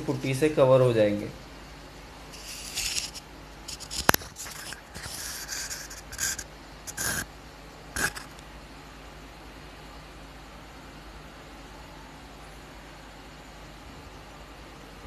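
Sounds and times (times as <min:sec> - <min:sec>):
scraping and rubbing strokes: 0:02.3 - 0:07.3, 0:08.0 - 0:08.4.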